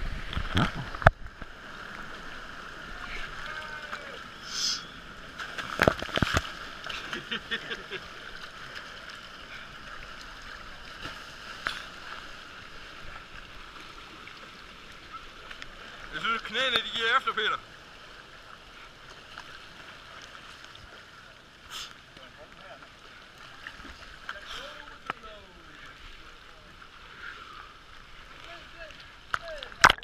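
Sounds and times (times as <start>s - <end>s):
water rushing and sloshing: 0.0s - 30.0s
brief hiss: 4.4s - 4.9s, 21.7s - 22.0s.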